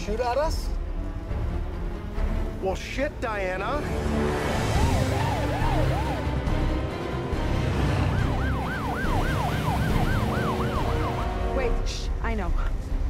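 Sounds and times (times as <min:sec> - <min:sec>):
siren yelp sweeps: 0:04.5 - 0:06.8, 0:07.8 - 0:11.5.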